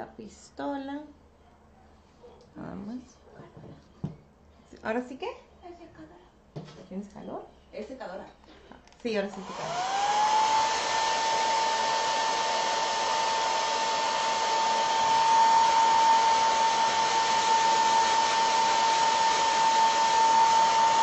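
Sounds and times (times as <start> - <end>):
hair dryer running: 9.2 - 21.0.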